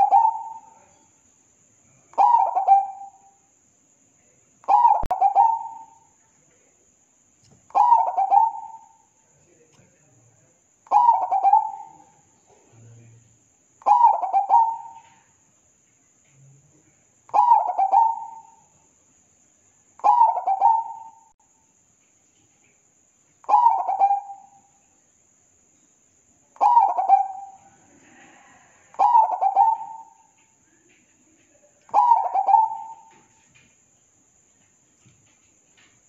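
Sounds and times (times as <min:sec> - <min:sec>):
dove cooing: 0:00.0 - 0:00.9, 0:02.2 - 0:03.2, 0:04.7 - 0:06.0, 0:07.7 - 0:09.0, 0:10.9 - 0:12.1, 0:13.8 - 0:15.3, 0:17.3 - 0:18.7, 0:20.0 - 0:21.3, 0:23.4 - 0:24.6, 0:26.6 - 0:30.4, 0:31.9 - 0:33.4.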